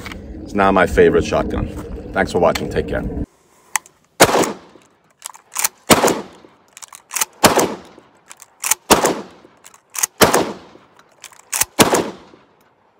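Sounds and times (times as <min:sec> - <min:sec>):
shotgun shots: 0:04.2 - 0:04.8, 0:05.5 - 0:08.0, 0:08.6 - 0:10.9, 0:11.5 - 0:12.5
shotgun slide racking clacks: 0:04.7 - 0:05.8, 0:06.4 - 0:08.9, 0:09.5 - 0:10.2, 0:10.9 - 0:11.8.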